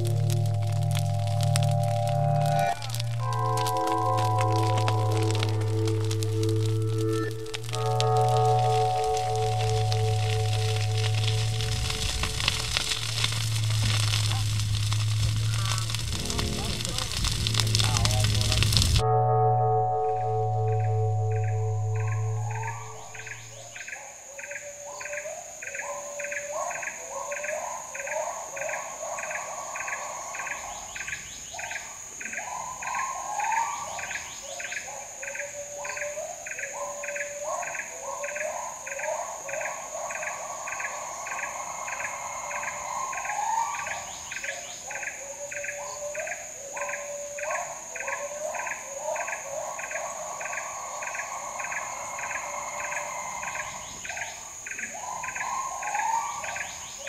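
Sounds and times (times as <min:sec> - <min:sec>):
animal call with bubbling trills: 0:00.0 - 0:19.0
insect chorus drone: 0:00.0 - 0:57.0
regular insect chirp: 0:00.0 - 0:57.0.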